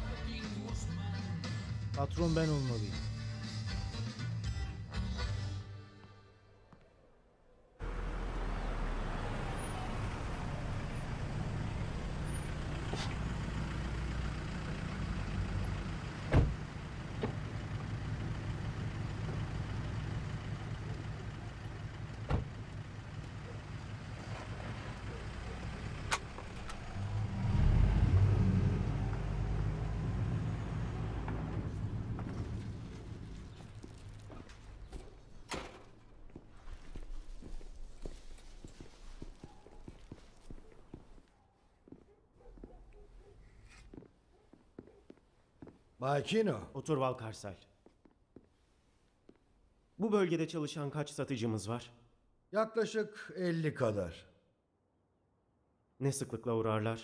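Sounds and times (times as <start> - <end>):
vehicle engine rumbling: 7.8 - 41.2.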